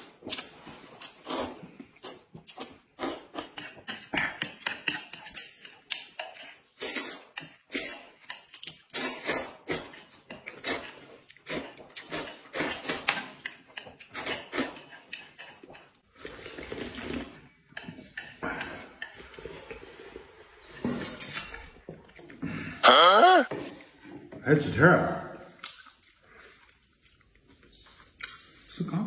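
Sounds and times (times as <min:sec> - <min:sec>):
smacking and chewing: 0:00.0 - 0:20.2, 0:21.3 - 0:22.4, 0:25.4 - 0:28.8
noodles being slurped: 0:00.0 - 0:20.9.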